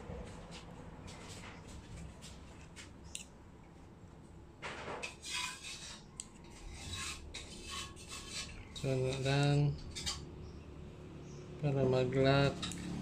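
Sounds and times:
fork scraping bread on a plate: 5.0 - 10.3.

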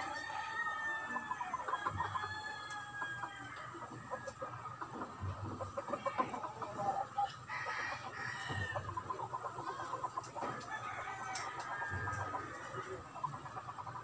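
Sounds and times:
rooster crowing: 0.0 - 3.8, 7.5 - 8.9, 10.6 - 12.8
chickens clucking: 0.0 - 14.0.

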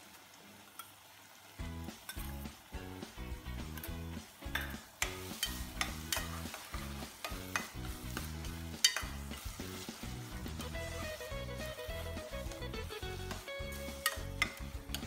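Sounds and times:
background music with beat: 1.6 - 15.0
spatula scraping stuffing in pot: 4.6 - 15.0
spatula knocking against pot: 7.2 - 9.2.

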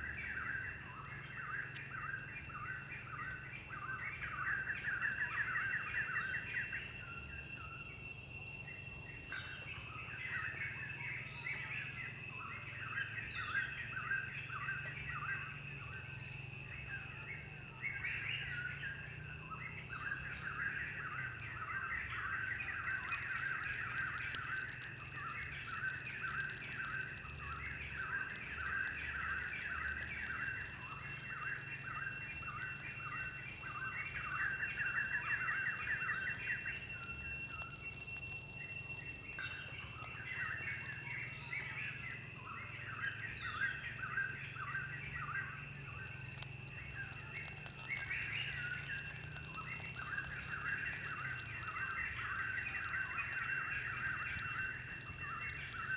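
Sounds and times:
steady high-pitched hum: 0.0 - 55.9
birds chirping: 39.4 - 55.9.

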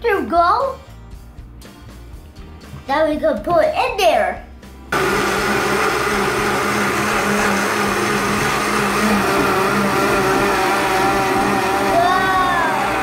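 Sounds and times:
blender motor whirring: 4.9 - 13.0.

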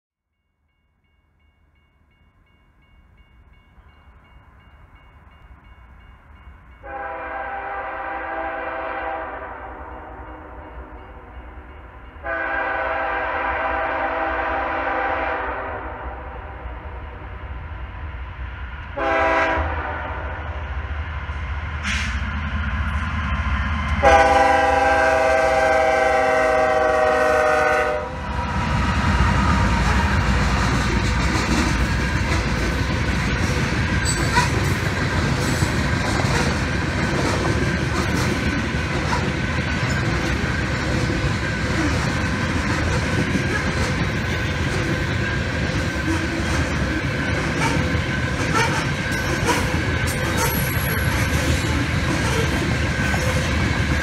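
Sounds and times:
train air horn: 6.8 - 11.0, 12.2 - 17.5, 19.0 - 20.7, 24.0 - 28.5, 47.5 - 53.5
locomotive rumble: 17.0 - 54.0.

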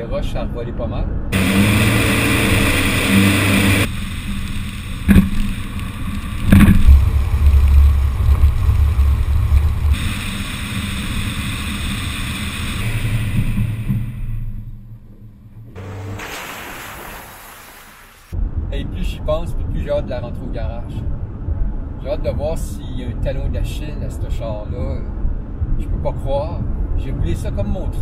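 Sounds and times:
tyres rumbling on gravel: 1.4 - 10.1.

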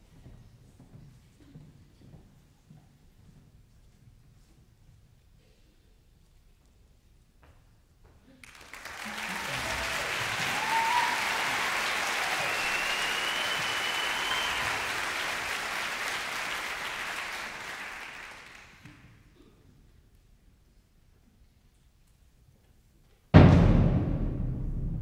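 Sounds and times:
audience applauding: 8.4 - 19.1
whistles: 9.4 - 17.2.

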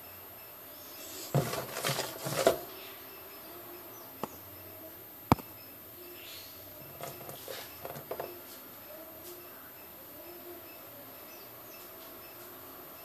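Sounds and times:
hand scraping plastic tub: 1.1 - 2.7, 6.9 - 8.3.

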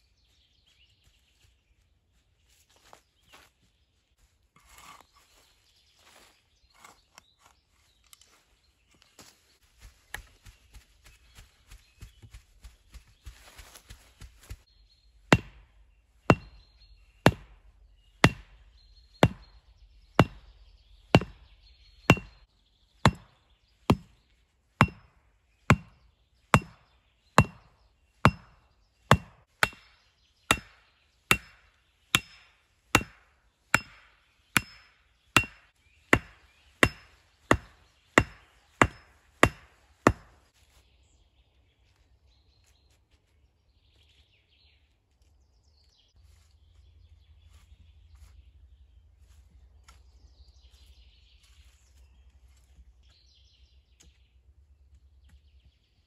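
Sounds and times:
hatchet striking wood: 15.3 - 24.2, 24.8 - 40.4.

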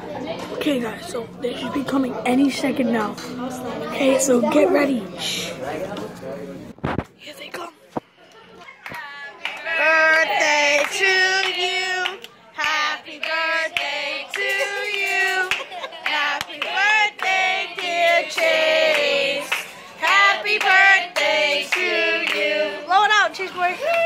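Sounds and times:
group of people singing: 9.0 - 22.9.

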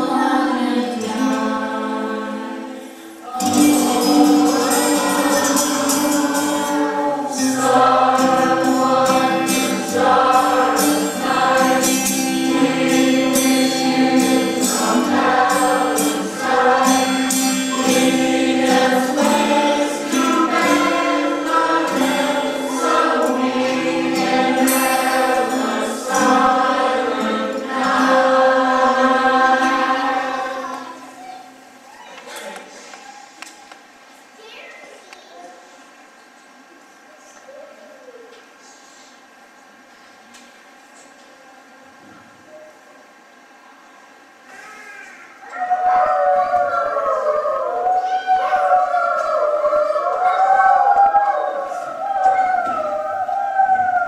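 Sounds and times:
choir singing: 0.0 - 31.2
instrumental accompaniment: 3.3 - 30.7
crisp percussion strokes: 3.5 - 30.7.

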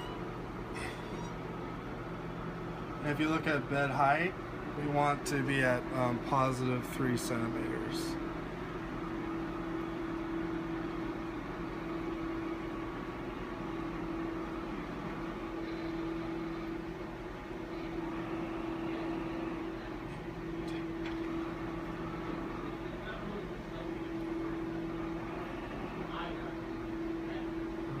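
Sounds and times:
motor humming: 0.0 - 28.0.

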